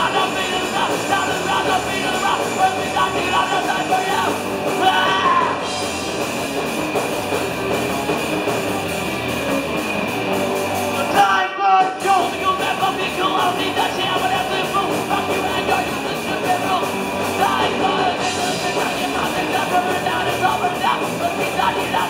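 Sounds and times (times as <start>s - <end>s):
person singing: 0.0s - 5.7s, 11.0s - 22.0s
distorted electric guitar: 0.0s - 22.0s
drums: 0.0s - 22.0s
punk rock band playing live: 0.0s - 22.0s.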